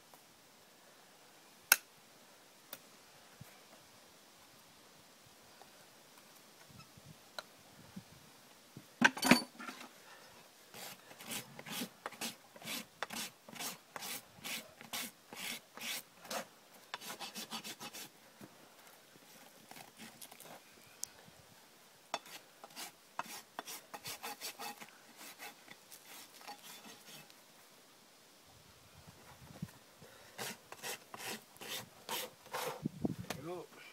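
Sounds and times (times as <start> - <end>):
hoof rasp scraping: 10.7 - 18.1, 22.2 - 27.3, 30.3 - 32.9.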